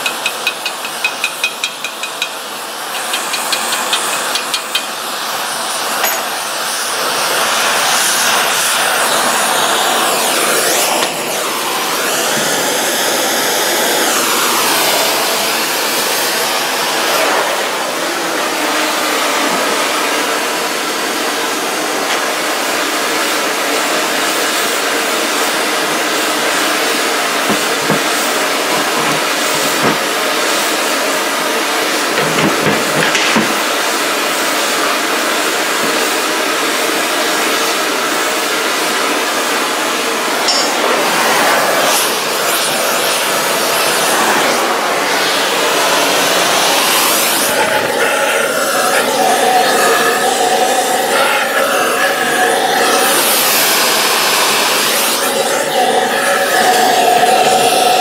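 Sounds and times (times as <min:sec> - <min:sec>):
gas torch flame rushing: 0:00.1 - 0:20.9, 0:24.2 - 0:36.3, 0:40.2 - 0:58.0
metal knocks: 0:27.5 - 0:30.1.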